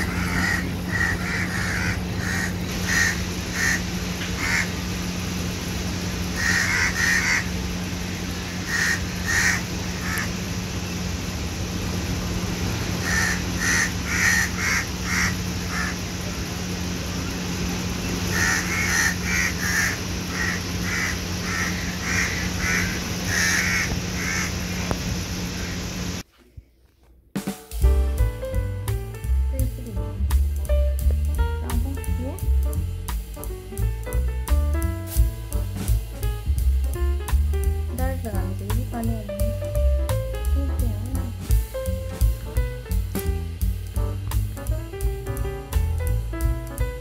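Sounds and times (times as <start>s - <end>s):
animal calling with harsh notes: 0.0s - 4.8s, 6.4s - 7.5s, 8.6s - 10.3s, 13.0s - 16.0s, 18.3s - 24.7s
steady low hum: 0.0s - 47.0s.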